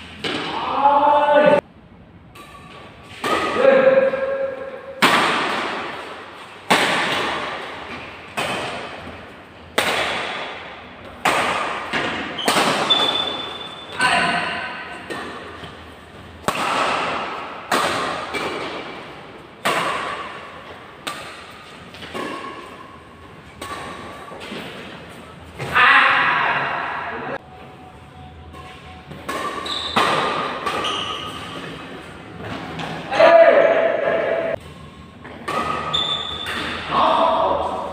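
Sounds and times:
rackets hitting shuttlecock: 0.1 - 0.6, 2.3 - 24.9, 28.5 - 33.2, 33.8 - 37.9
shoe squeak: 12.3 - 14.1, 29.5 - 31.8, 35.8 - 36.7.

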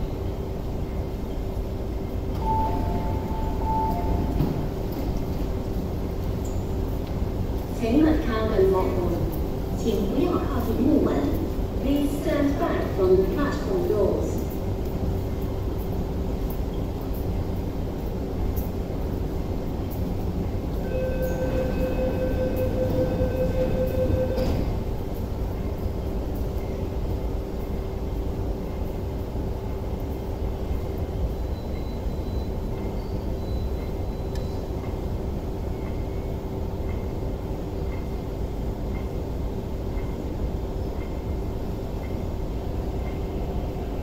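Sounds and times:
train hum: 0.0 - 44.0
train rumble: 0.0 - 44.0
train doors shutting click: 2.3 - 5.5, 20.8 - 25.3
rapid door warning beeps: 21.0 - 24.7, 33.4 - 34.8.

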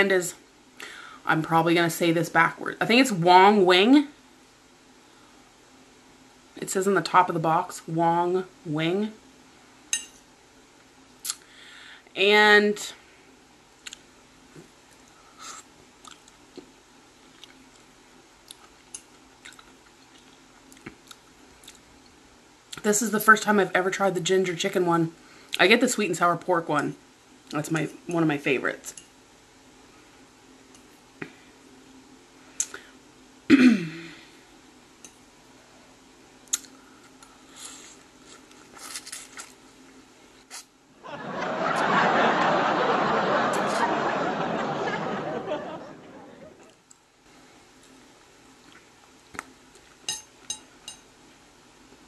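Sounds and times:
faint steady hiss: 0.0 - 52.0
person chewing food: 16.0 - 21.9, 48.6 - 50.5
laugh track: 41.0 - 46.7.

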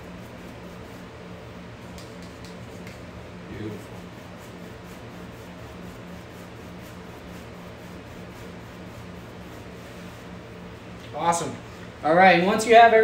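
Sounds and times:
paintbrush bristles rubbing on canvas: 0.0 - 1.3, 2.0 - 10.4.

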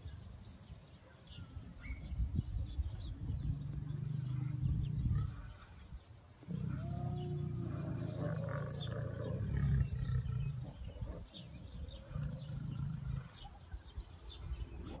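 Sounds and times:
faint birds chirping: 0.0 - 15.0
lions growling: 3.2 - 5.8, 6.4 - 13.6.

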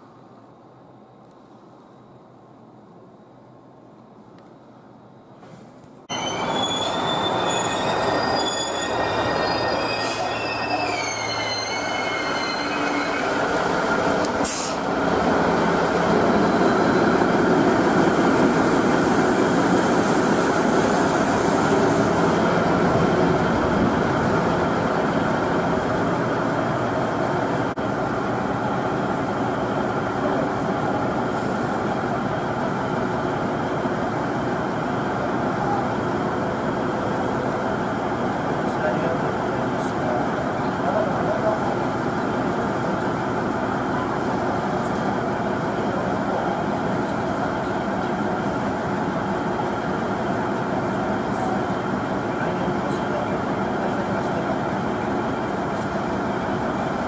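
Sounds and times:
train wheel squeals: 6.1 - 14.6, 16.2 - 17.3
diesel railcar engine running: 6.1 - 57.0.

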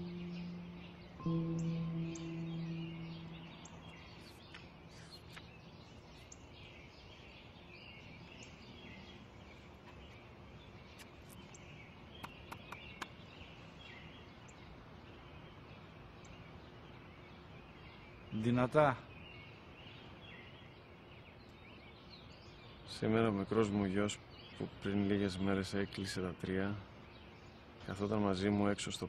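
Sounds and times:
low sustained musical note: 0.0 - 5.3
small birds chirping: 0.0 - 29.0.

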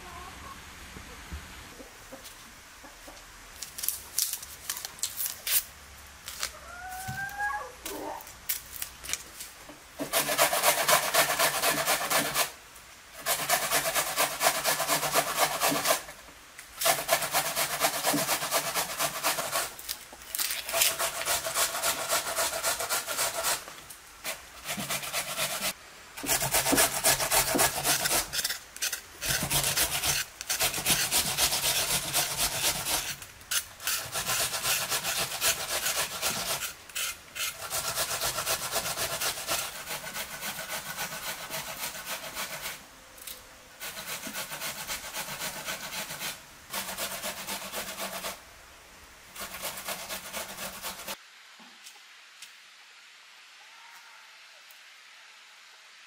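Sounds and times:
onion grated on metal grater: 24.3 - 42.7.

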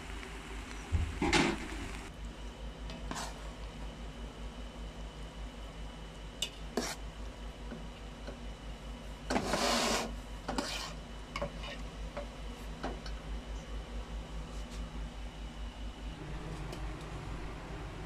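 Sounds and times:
metal spoon scraping a pot: 9.3 - 11.8
low steady hum: 10.2 - 18.0.

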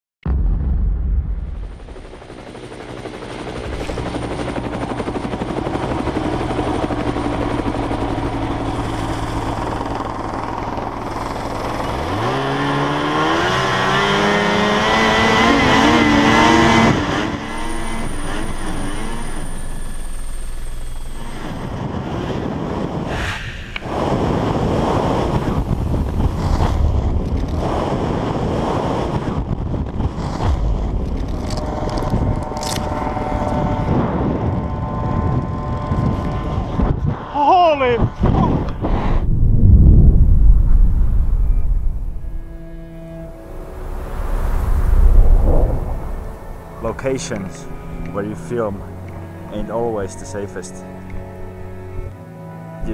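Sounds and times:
rough rushing noise: 0.3 - 35.3, 38.4 - 49.5
snowmobile engine revving: 7.4 - 23.0.

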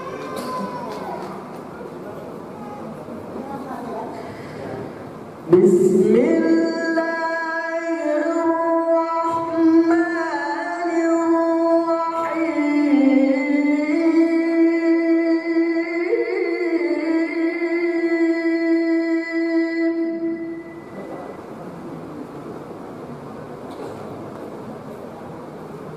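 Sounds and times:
person reciting melodically: 5.5 - 20.8.

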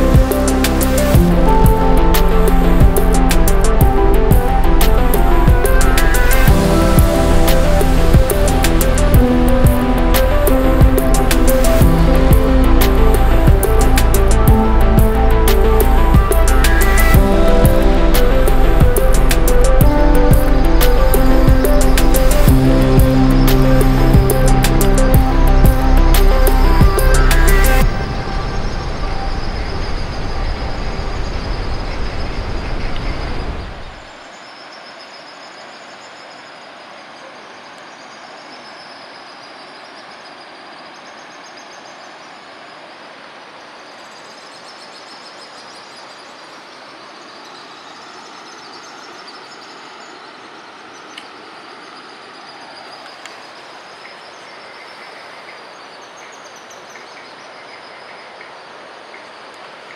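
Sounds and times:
falling water rushing: 0.0 - 31.8.

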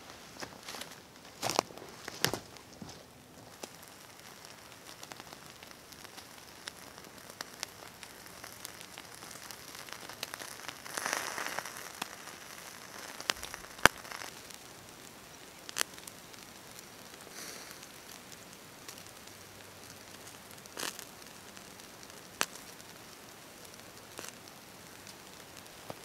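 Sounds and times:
campfire crackling and popping: 0.4 - 26.0
short hiss: 17.3 - 17.8.

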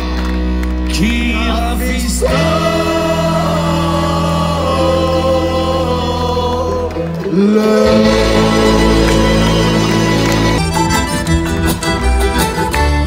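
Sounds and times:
guitar: 0.0 - 13.0
several voices singing: 1.0 - 10.7
accordion: 7.7 - 13.0.

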